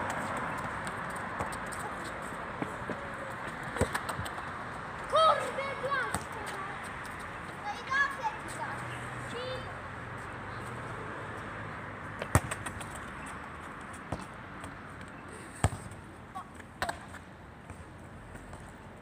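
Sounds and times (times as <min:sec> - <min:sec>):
city background hum: 0:00.0 - 0:19.0
football thudding on stone paving: 0:12.2 - 0:13.0.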